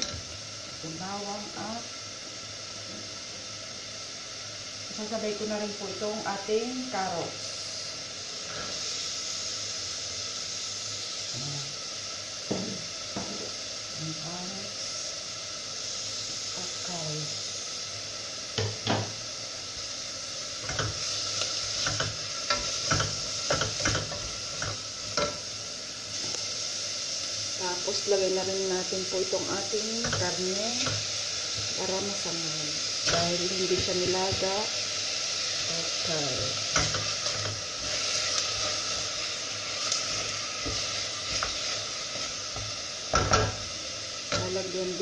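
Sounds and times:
vegetables sizzling in a pot: 0:00.0 - 0:45.0.

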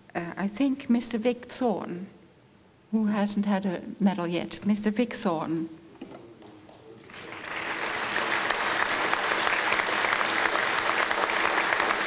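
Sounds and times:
audience applause: 0:07.0 - 0:12.0.

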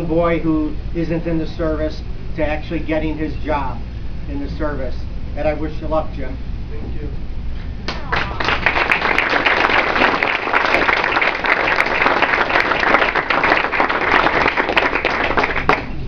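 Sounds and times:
crowd applauding: 0:07.9 - 0:16.0.

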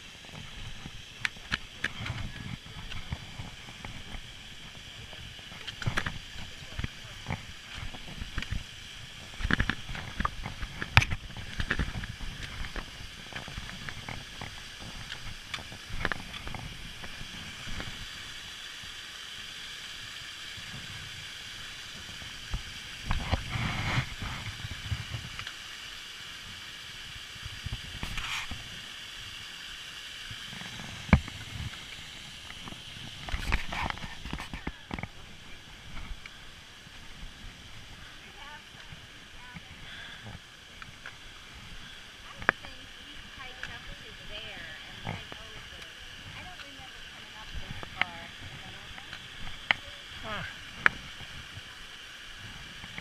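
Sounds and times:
waterfall rushing: 0:29.5 - 0:53.0.

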